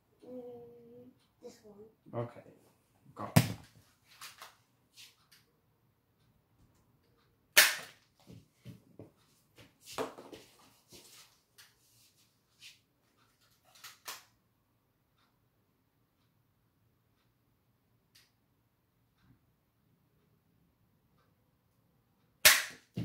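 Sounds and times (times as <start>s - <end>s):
toy dart gun snap: 7.6s - 8.0s, 22.4s - 22.9s.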